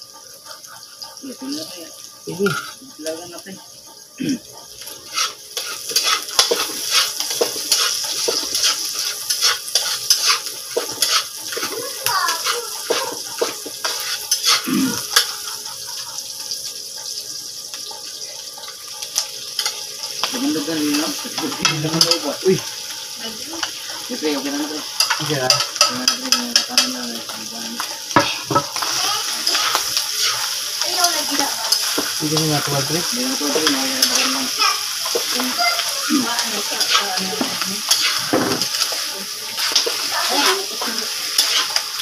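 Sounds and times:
meat sizzling in a wok: 0.0 - 42.0
spatula scraping a metal pan: 2.5 - 2.8, 4.8 - 16.4, 23.5 - 42.0.

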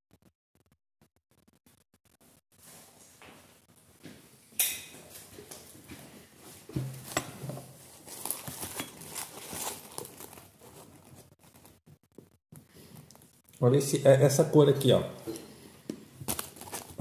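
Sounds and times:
rustling and small knocks: 4.9 - 13.5
dry leaf crackling: 7.9 - 11.7.

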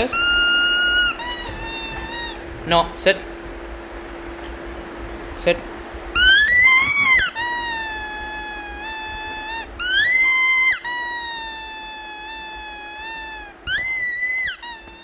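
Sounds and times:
rubber squeaky toy squeaking: 0.0 - 2.5, 6.2 - 15.0.

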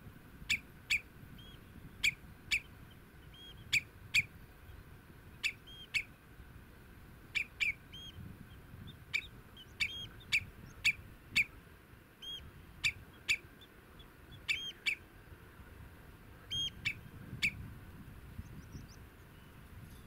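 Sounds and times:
redshank alarm calls: 0.4 - 6.2, 7.3 - 11.6, 12.2 - 15.1, 16.4 - 17.7, 18.4 - 19.6.

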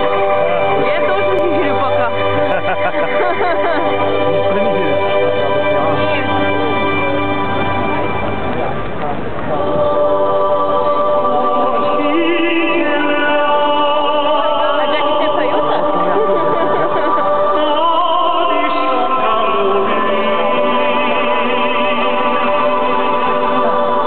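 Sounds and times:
sustained chords: 0.0 - 24.0
choir singing held notes: 9.5 - 24.0.

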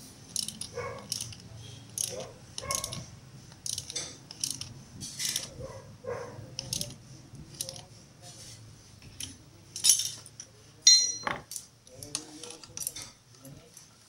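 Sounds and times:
metal tools clicking and clinking: 0.3 - 5.6, 9.2 - 13.6.

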